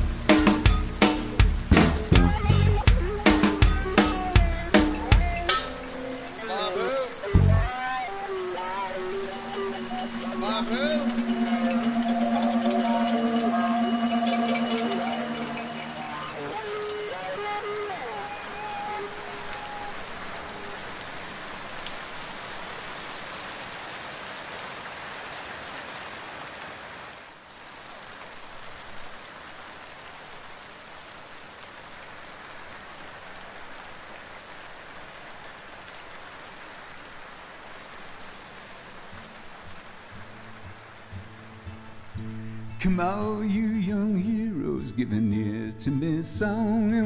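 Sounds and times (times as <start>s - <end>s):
tyres hissing on wet asphalt: 0.0s - 15.0s.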